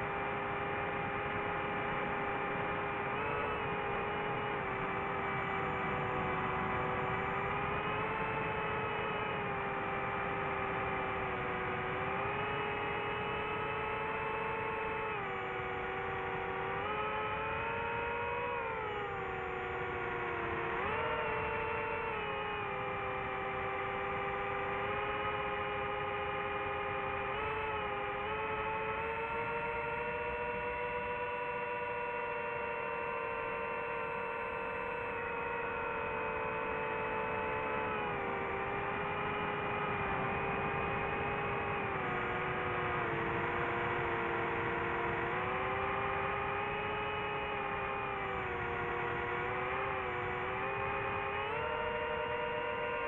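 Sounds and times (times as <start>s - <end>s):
drone motors whining: 0.0s - 53.0s.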